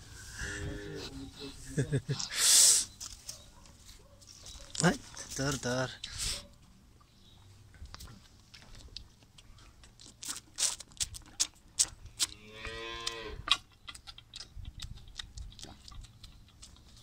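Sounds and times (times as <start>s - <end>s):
calf sucking bottle: 10.0s - 12.4s.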